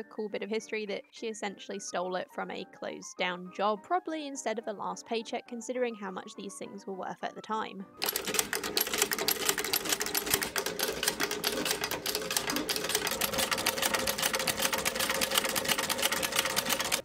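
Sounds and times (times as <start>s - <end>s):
sewing machine clattering: 8.0s - 17.0s.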